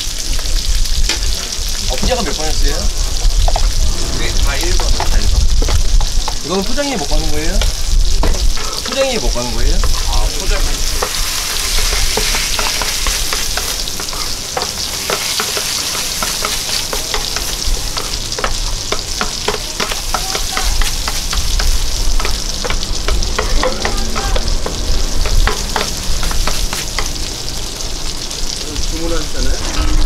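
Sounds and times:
rice sizzling on griddle: 0.0 - 30.0
spatulas scraping and tapping griddle: 7.0 - 27.2.

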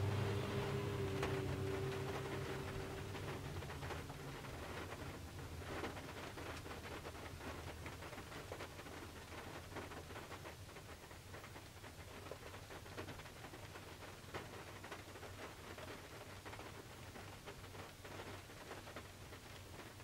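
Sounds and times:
steady low rumble: 0.0 - 5.7
rain drops ticking on car roof: 0.0 - 20.0.

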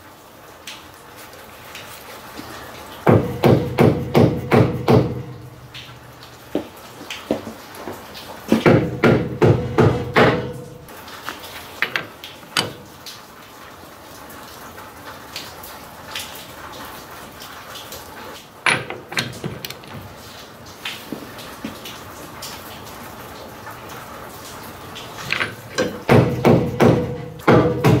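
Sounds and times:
hand tools knocking on metal: 8.5 - 10.7, 11.8 - 12.9, 18.6 - 20.1, 25.2 - 28.0.

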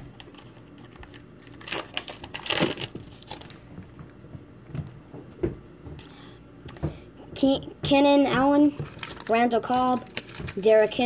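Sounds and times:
wrapper crinkling and tearing: 0.0 - 3.6, 8.9 - 11.0.

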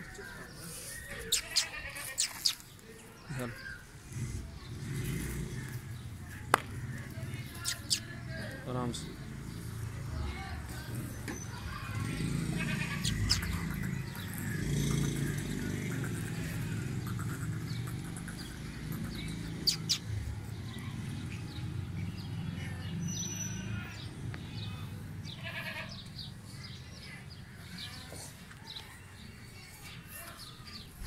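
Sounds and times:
goats bleating: 1.1 - 2.3, 11.8 - 14.2, 25.4 - 26.0.

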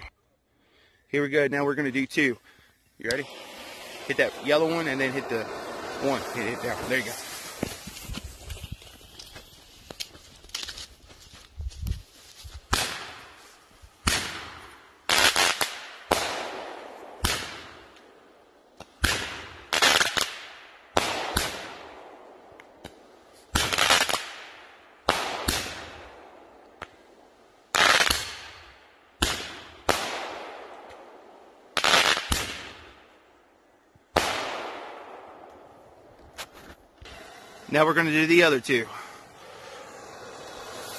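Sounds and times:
firework star hissing: 3.1 - 9.8, 37.0 - 40.9.

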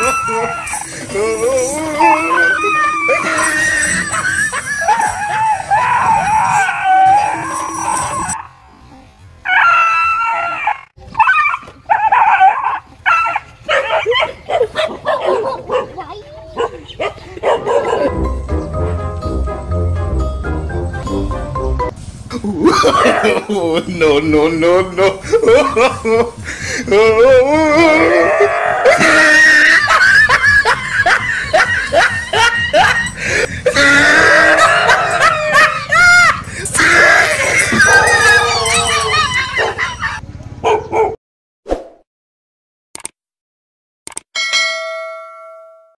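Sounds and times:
dog crying high: 0.0 - 8.4, 28.0 - 41.2
dog barking quickly: 12.0 - 16.0, 16.6 - 18.1, 40.6 - 41.2.

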